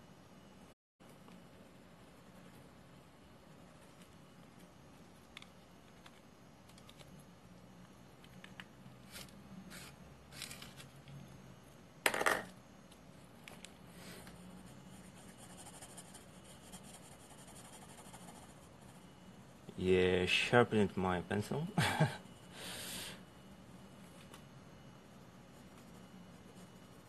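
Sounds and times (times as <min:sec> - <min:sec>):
pencil scratching on paper: 0:14.7 - 0:19.0.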